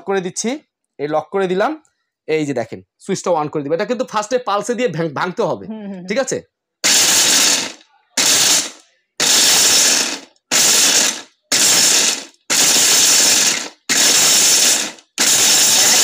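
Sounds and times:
mixer grinder blades rattling: 0:06.8 - 0:16.0.

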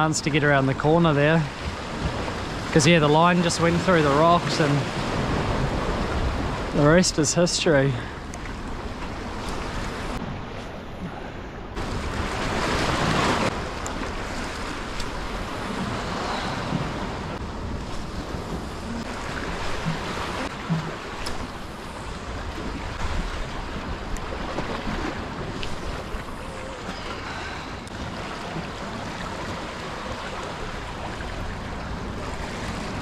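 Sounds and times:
wind: 0:00.0 - 0:33.0
waves washing against rocks: 0:11.8 - 0:33.0.

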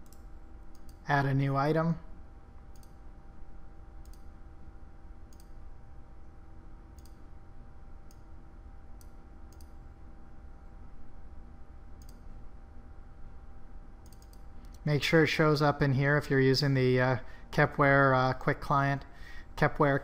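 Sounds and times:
computer mouse clicking: 0:00.0 - 0:01.0, 0:02.7 - 0:03.0, 0:04.0 - 0:04.3, 0:05.3 - 0:05.6, 0:07.0 - 0:07.2, 0:09.0 - 0:09.8, 0:12.0 - 0:12.3, 0:14.0 - 0:14.8
faint hum: 0:00.0 - 0:20.0.

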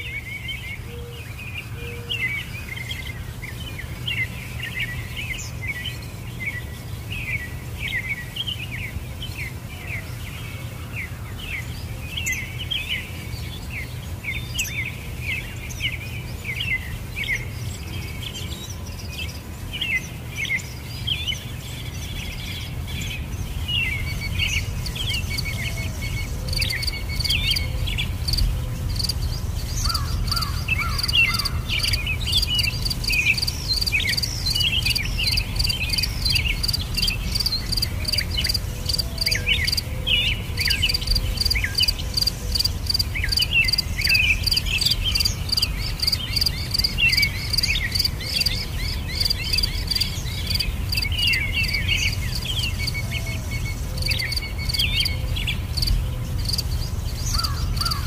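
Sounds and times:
small birds chirping: 0:00.0 - 0:58.0
insects trilling: 0:23.7 - 0:39.9, 0:40.5 - 0:58.0.

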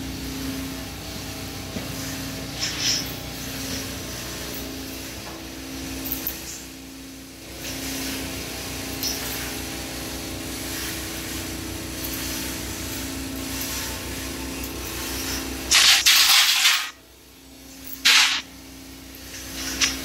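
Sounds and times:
gas compressor engine running: 0:00.0 - 0:20.0
loud rushing hiss: 0:18.0 - 0:18.6.

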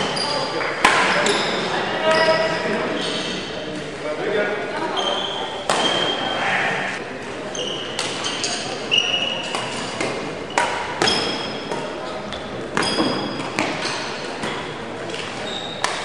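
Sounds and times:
shoes squeaking on court floor: 0:00.0 - 0:04.0, 0:04.8 - 0:16.0
racket hitting shuttlecock: 0:00.8 - 0:01.4, 0:05.6 - 0:06.2, 0:08.0 - 0:08.6, 0:09.4 - 0:16.0.

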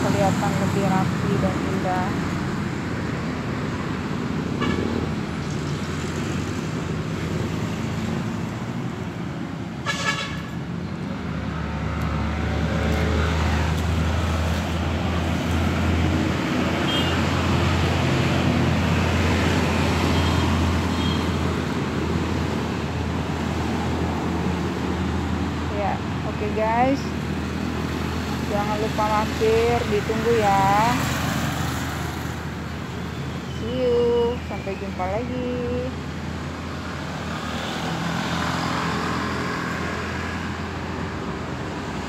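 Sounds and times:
street traffic passing: 0:00.0 - 0:42.0
car horn toot: 0:16.9 - 0:17.2.

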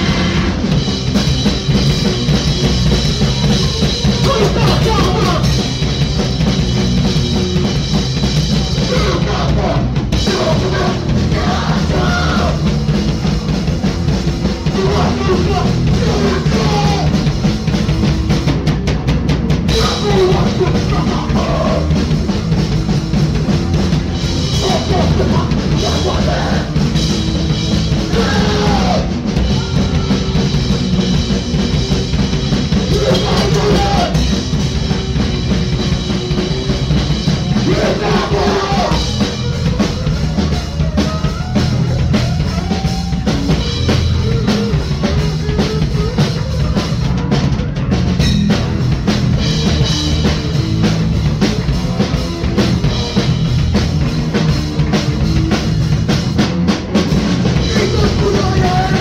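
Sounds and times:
drum kit: 0:00.0 - 0:59.0
guitar: 0:00.0 - 0:59.0
punk band playing live: 0:00.0 - 0:59.0
person singing into microphone: 0:32.9 - 0:34.2.

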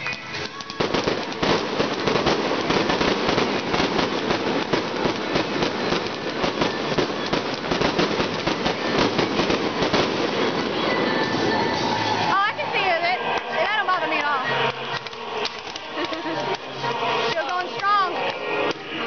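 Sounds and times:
fireworks bangs and crackling pops: 0:00.0 - 0:12.6, 0:13.2 - 0:19.0.

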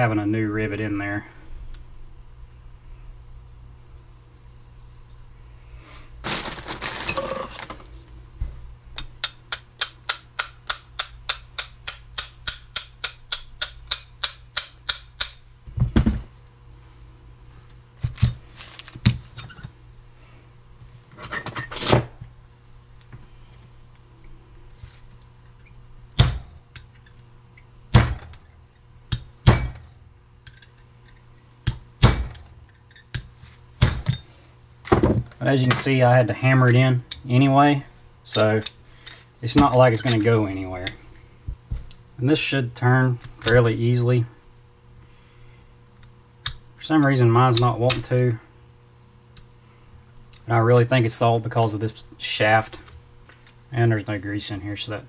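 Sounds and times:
hammer striking steel pin: 0:09.2 - 0:15.4.

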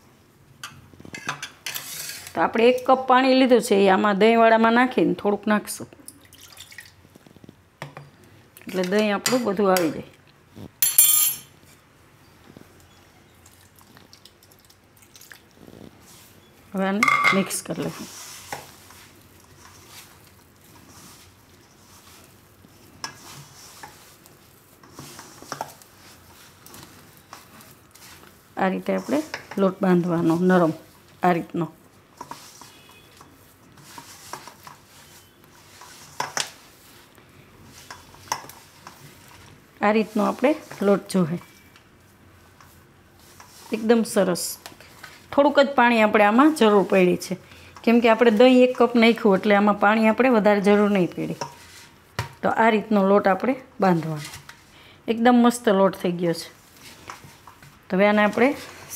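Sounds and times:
water pouring: 0:06.2 - 0:07.0, 0:13.5 - 0:15.5
spoon clattering on stone: 0:10.8 - 0:11.5
hands kneading sticky dough: 0:17.5 - 0:54.7.

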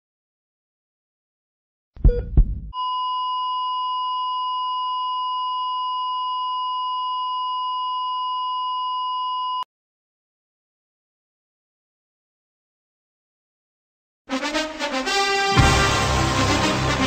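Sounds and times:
loud low thuds: 0:02.0 - 0:02.7.

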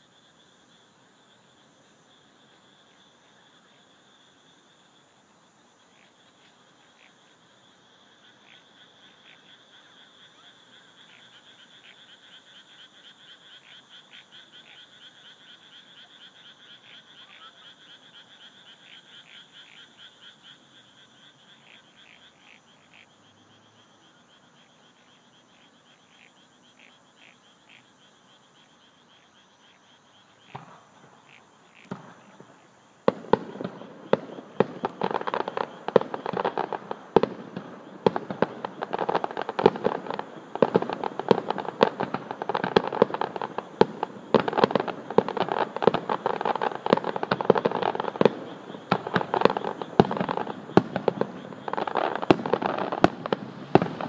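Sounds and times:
frogs croaking: 0:00.0 - 0:54.0
night insects trilling: 0:00.0 - 0:54.0
fireworks bangs: 0:30.5 - 0:31.2, 0:31.8 - 0:54.0.

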